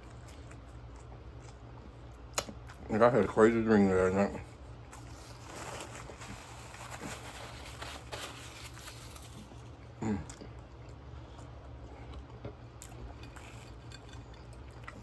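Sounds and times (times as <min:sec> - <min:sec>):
low steady hum: 0:00.0 - 0:15.0
quiet eating sounds: 0:00.0 - 0:15.0
paper napkin rustling: 0:04.9 - 0:09.7
person humming mm: 0:10.0 - 0:10.5.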